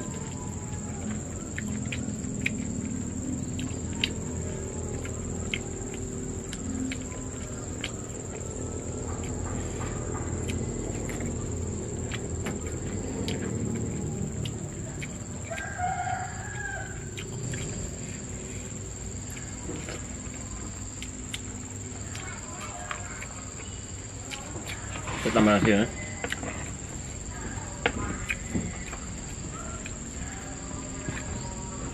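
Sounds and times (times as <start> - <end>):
rooster crowing: 0.0 - 2.3, 15.3 - 18.0, 28.0 - 31.9
high-pitched insect drone: 0.0 - 24.5.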